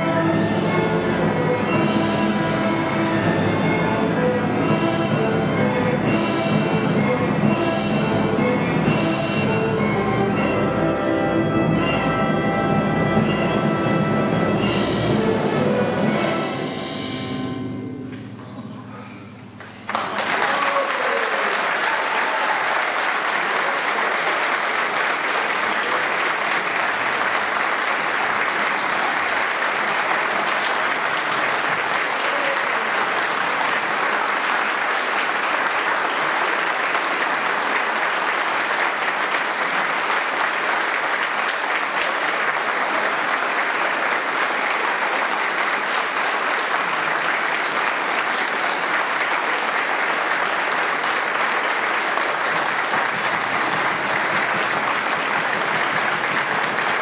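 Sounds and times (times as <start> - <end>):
audience applauding: 19.6 - 57.0.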